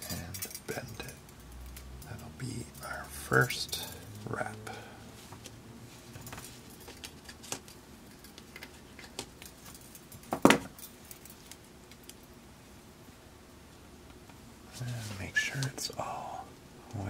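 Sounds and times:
wire pieces clinking and rattling: 0.0 - 4.0, 6.2 - 12.3.

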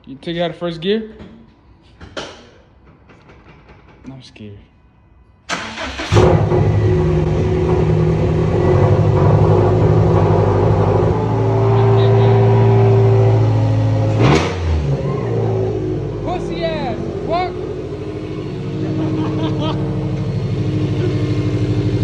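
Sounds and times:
engine revving burst: 5.5 - 16.2, 16.8 - 22.0
car engine idling loud: 15.8 - 22.0.

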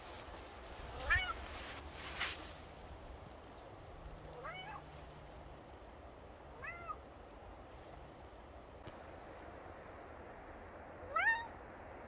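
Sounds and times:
cat meowing: 4.4 - 4.8, 6.6 - 7.0, 11.1 - 11.5.

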